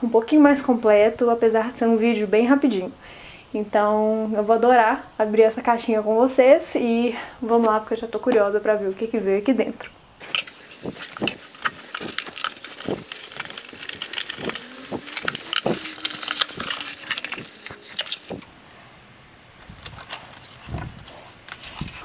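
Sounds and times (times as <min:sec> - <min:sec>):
cardboard box being opened: 0:10.2 - 0:18.5
packing material crackling: 0:10.2 - 0:18.5.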